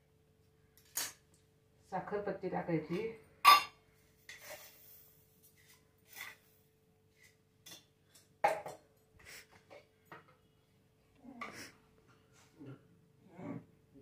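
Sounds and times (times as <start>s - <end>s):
spoon clinking on steel containers: 3.4s - 4.8s, 7.6s - 9.1s.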